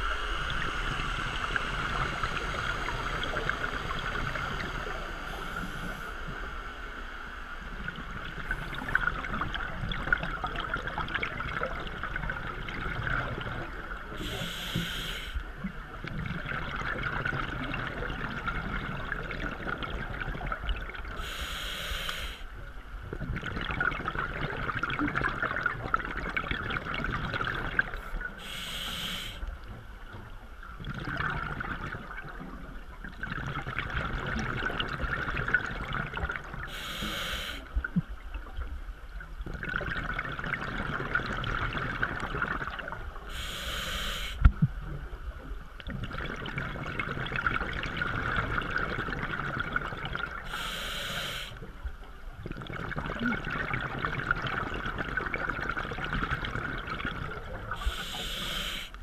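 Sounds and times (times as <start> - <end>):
regulator hissing inhalations: 14.2 - 15.4, 21.2 - 22.5, 28.4 - 29.4, 36.7 - 37.6, 43.3 - 44.4, 50.5 - 51.6, 57.8 - 59.0
bubbling exhalations: 52.4 - 58.6.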